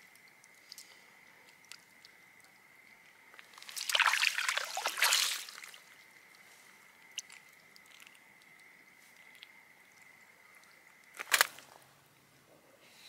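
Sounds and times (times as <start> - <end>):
fish splashing in water: 3.5 - 5.9.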